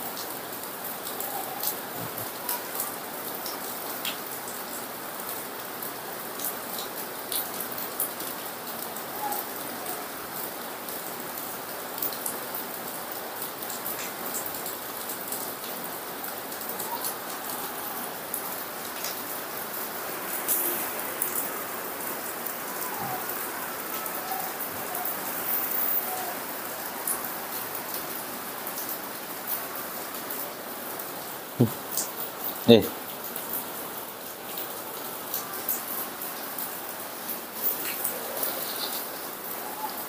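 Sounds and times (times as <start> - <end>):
heavy rain falling: 0.0 - 40.0
raindrops ticking: 10.8 - 39.3.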